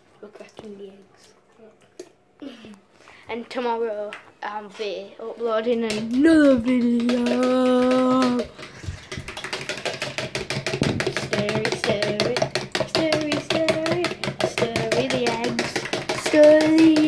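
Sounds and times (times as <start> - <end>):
eggs beaten in plastic jug: 5.4 - 17.0
person humming a tune: 6.2 - 8.6.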